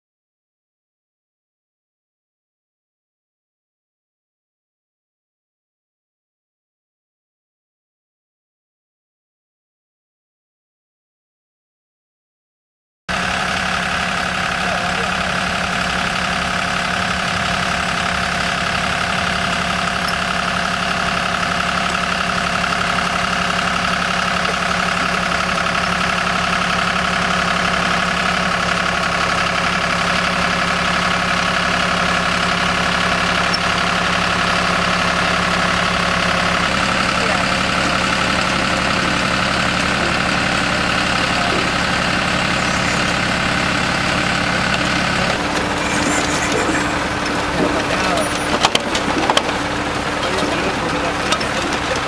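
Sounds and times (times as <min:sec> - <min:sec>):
tractor diesel engine running: 0:13.1 - 0:52.0
potato digger in soil: 0:32.6 - 0:49.6.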